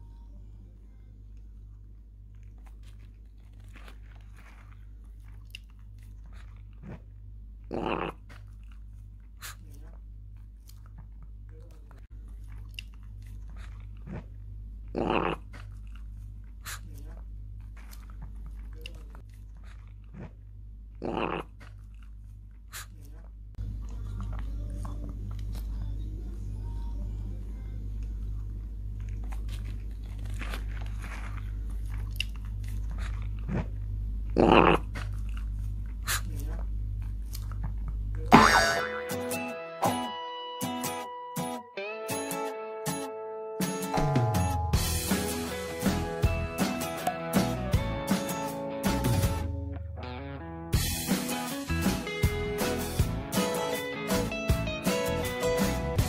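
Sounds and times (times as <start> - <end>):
dog burping: 7.7 - 8.3, 14.9 - 15.5, 21.0 - 21.6, 34.3 - 35.0, 38.3 - 39.1.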